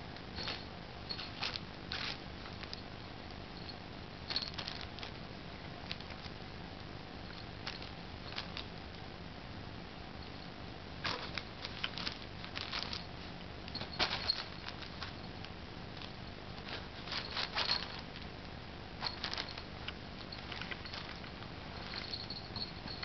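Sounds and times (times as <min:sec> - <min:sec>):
nylon tunnel rustling: 0:11.0 - 0:18.2.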